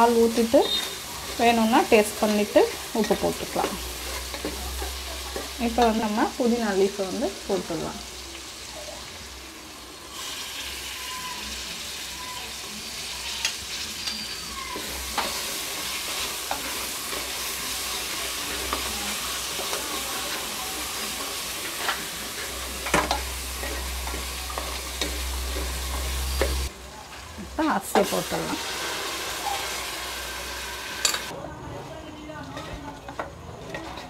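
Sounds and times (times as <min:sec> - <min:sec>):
vegetables sizzling in oil: 0:00.0 - 0:31.4
spatula scraping a pan: 0:00.2 - 0:06.0, 0:12.9 - 0:26.7, 0:32.5 - 0:34.0.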